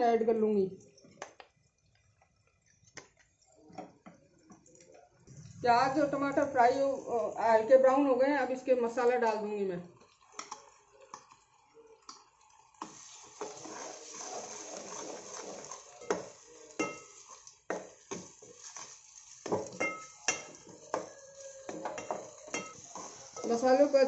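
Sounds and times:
paste sizzling in hot oil: 12.2 - 24.0
spoon scraping and tapping: 14.5 - 23.6
spoon clinking against pot: 16.0 - 23.6.

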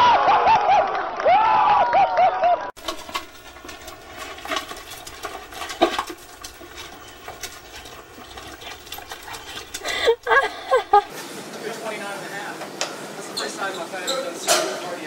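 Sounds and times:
dogs scuffling: 2.8 - 11.1.

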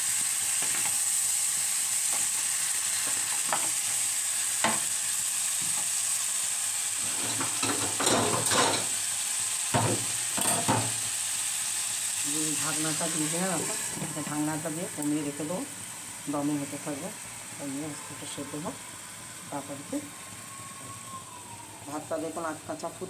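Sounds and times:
food sizzling in oil: 0.0 - 23.0
spoon scraping and knocking pan: 7.0 - 8.9, 9.7 - 11.0.

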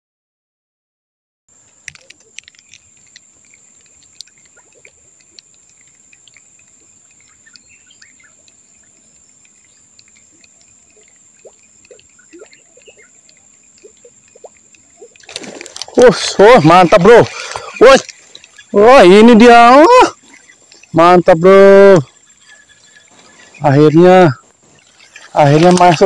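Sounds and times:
high insect buzz: 1.5 - 26.0
soft clicks: 1.6 - 16.0
faint bird chirps: 2.0 - 15.2, 22.0 - 25.4.

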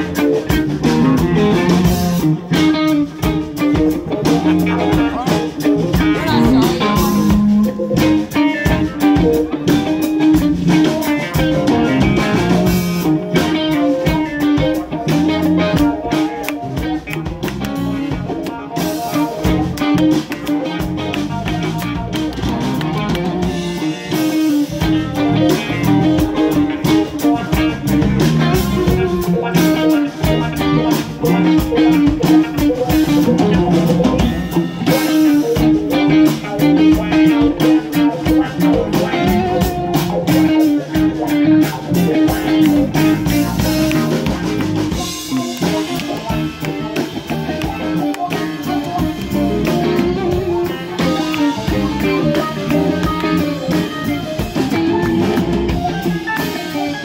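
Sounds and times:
electric guitars: 0.0 - 57.0
live rock band playing: 0.0 - 57.0.

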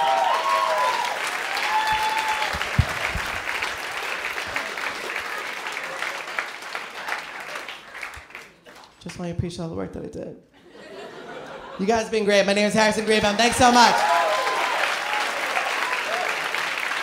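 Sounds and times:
audience applauding: 0.0 - 9.0, 13.0 - 17.0.

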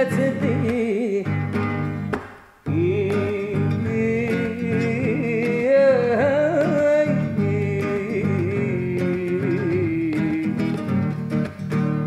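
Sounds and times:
strummed nylon-string guitar: 0.0 - 12.0
man singing held notes: 2.7 - 10.9.

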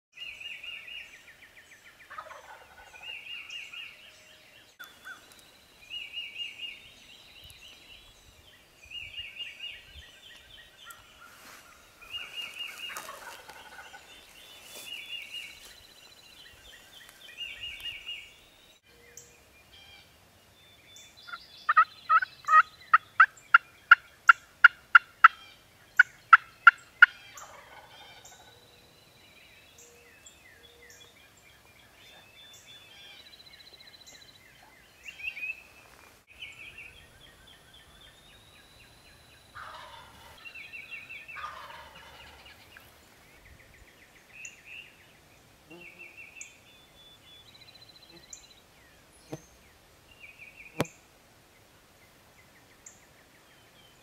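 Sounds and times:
songbird calls: 0.2 - 54.0
turkey gobbles: 12.2 - 14.0
sharp turkey yelps: 21.7 - 25.5.

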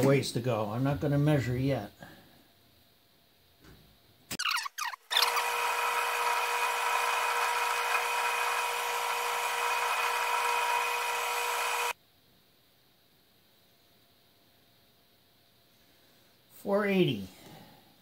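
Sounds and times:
lathe squeals: 5.2 - 11.9
metal lathe running: 5.2 - 11.9.

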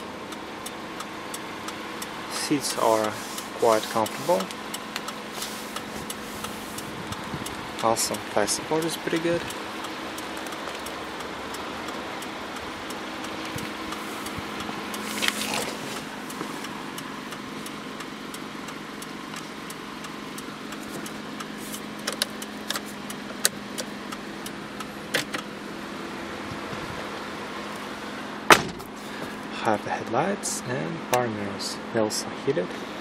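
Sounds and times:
car engine hum from inside cabin: 0.0 - 33.0
clicks and taps of car controls: 0.3 - 25.5, 31.1 - 31.3.

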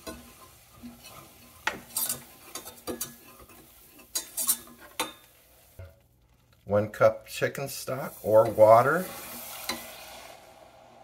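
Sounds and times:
whisk clinking and scraping pan: 0.0 - 5.9
faint sizzle: 0.0 - 11.0.

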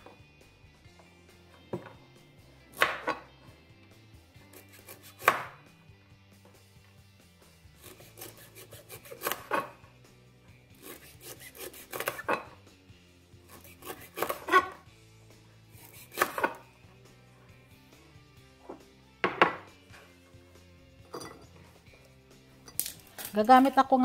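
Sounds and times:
knife chopping on wooden board: 2.7 - 3.3, 4.5 - 5.6, 7.8 - 9.8, 10.8 - 12.6, 13.5 - 14.8, 15.8 - 16.7, 18.7 - 19.7.

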